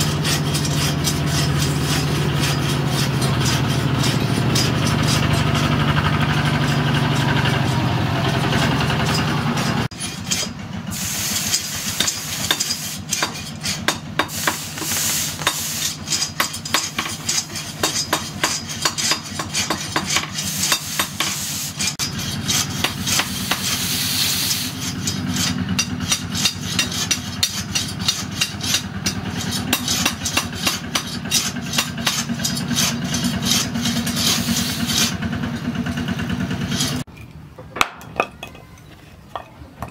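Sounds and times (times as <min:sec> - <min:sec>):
hot steel hissing in water: 0:10.0 - 0:35.2.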